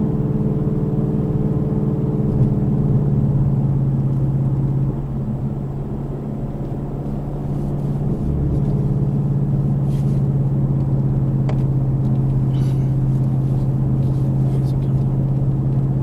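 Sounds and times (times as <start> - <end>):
car engine driving: 0.0 - 16.0
tyre noise on road: 3.5 - 16.0.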